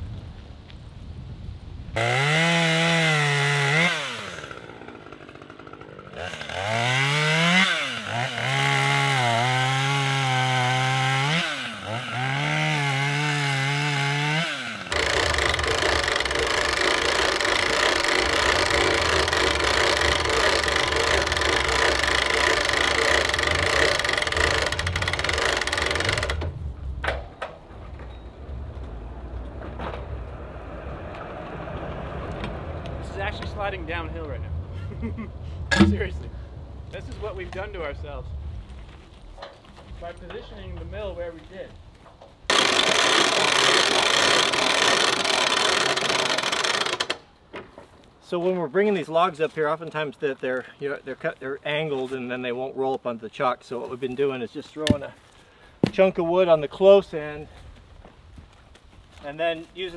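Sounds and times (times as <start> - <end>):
engine revving: 2.0 - 26.5, 28.9 - 34.6, 42.5 - 47.0
loud steady machine noise: 14.9 - 26.4.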